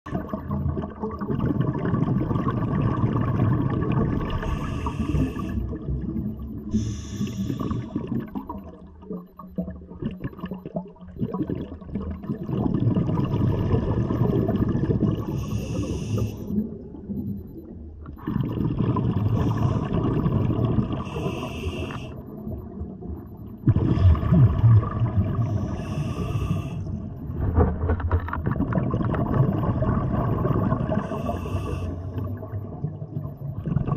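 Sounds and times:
exhaled bubbles underwater: 0:00.1 - 0:33.9
hissing breaths through regulator: 0:04.4 - 0:05.7, 0:06.7 - 0:08.0, 0:15.3 - 0:16.5, 0:21.0 - 0:22.2, 0:25.4 - 0:26.9, 0:31.0 - 0:32.2.

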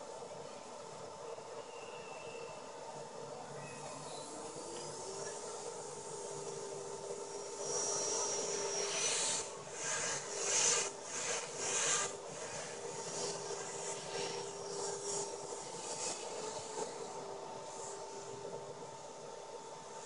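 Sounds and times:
rc helicopter rotor whine: 0:03.4 - 0:20.0.

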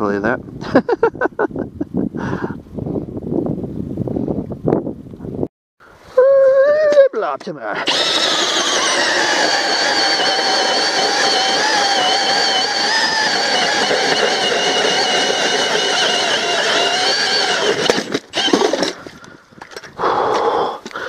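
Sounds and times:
drill motor whining through ice: 0:07.8 - 0:19.1.

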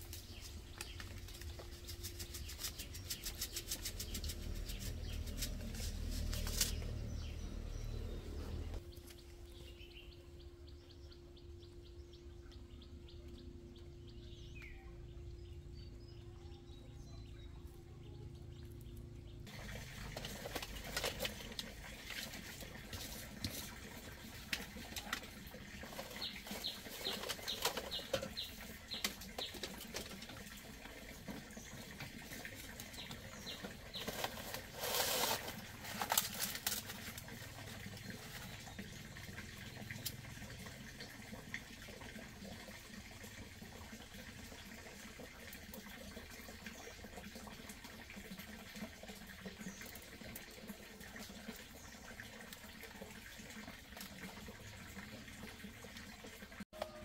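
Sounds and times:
firewood and pots clattering: 0:19.4 - 0:40.3.

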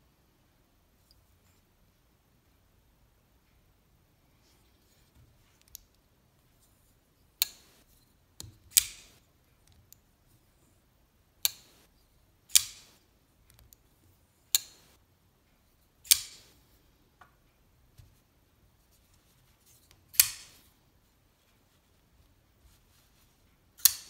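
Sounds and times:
knife blade snapping with metallic clicks: 0:23.8 - 0:24.0.

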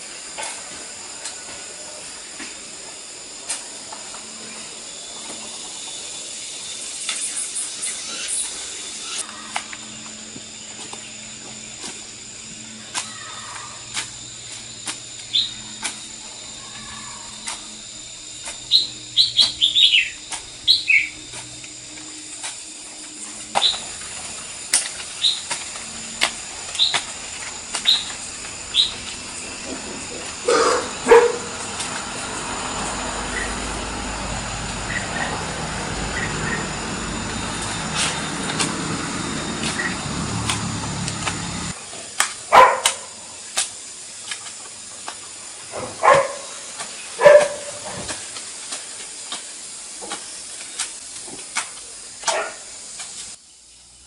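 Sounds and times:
hoe chopping soil: 0:12.8 - 0:16.1, 0:23.4 - 0:32.0, 0:37.4 - 0:45.2, 0:45.8 - 0:52.7
birds chirping: 0:15.3 - 0:15.8, 0:18.3 - 0:21.3, 0:23.1 - 0:25.6, 0:26.6 - 0:27.1, 0:27.7 - 0:32.5, 0:34.7 - 0:40.1.

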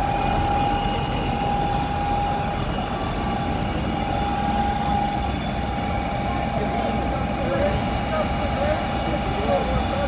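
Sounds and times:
fire engine pump running: 0:00.0 - 0:10.0.

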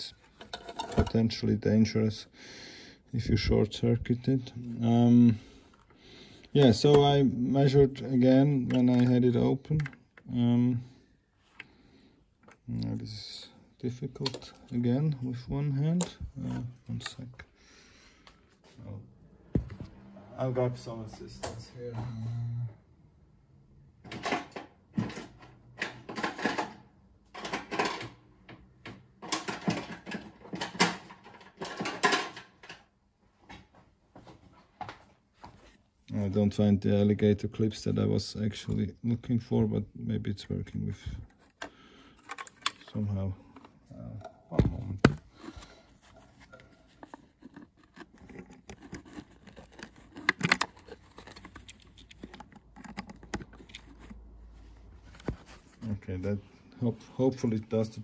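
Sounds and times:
tools and parts clattering: 0:00.0 - 0:01.5, 0:24.0 - 0:32.9, 0:40.9 - 0:54.2.

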